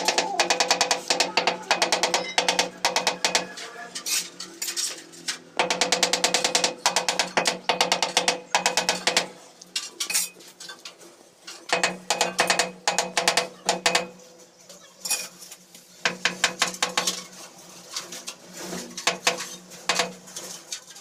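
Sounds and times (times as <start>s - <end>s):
rattling clicking percussion: 0.0s - 10.3s, 11.7s - 14.2s.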